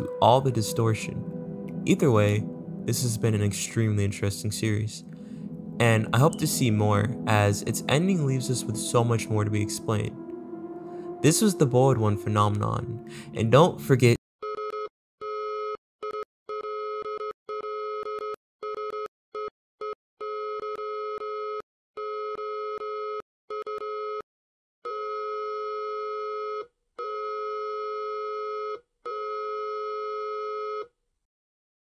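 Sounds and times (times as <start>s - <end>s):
buzzy electronic warning tone: 0.0s - 14.0s.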